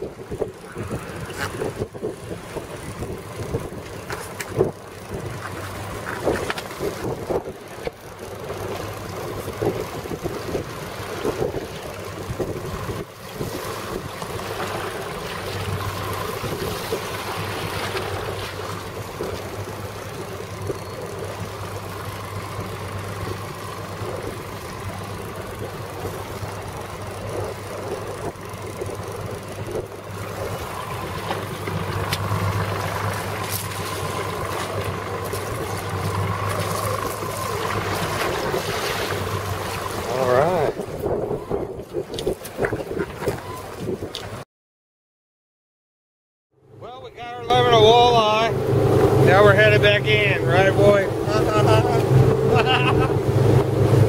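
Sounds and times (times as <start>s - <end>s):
wind buffeting microphone: 0.0s - 21.8s, 23.2s - 44.4s
outboard motors humming: 0.0s - 44.4s, 46.5s - 54.0s
water washing against hull: 0.0s - 44.4s, 46.8s - 54.0s.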